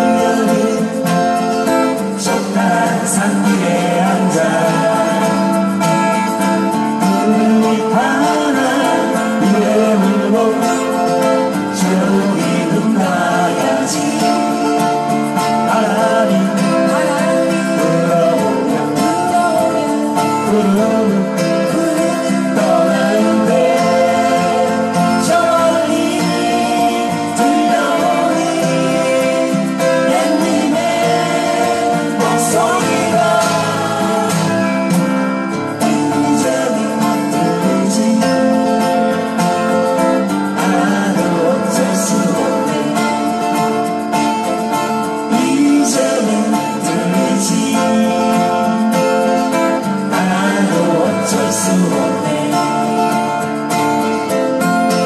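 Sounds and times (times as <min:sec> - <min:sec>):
sliding lead melody: 0:00.0 - 0:42.0
acoustic guitars strumming: 0:00.0 - 0:55.0.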